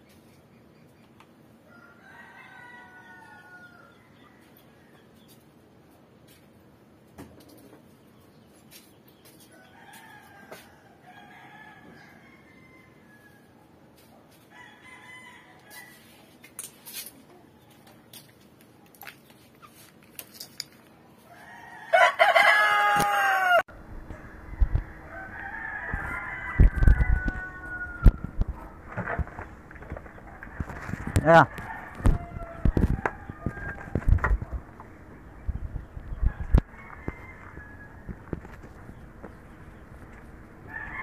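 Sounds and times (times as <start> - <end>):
roosters crowing: 1.6 - 5.0, 9.4 - 13.8, 14.4 - 16.4, 21.2 - 41.0.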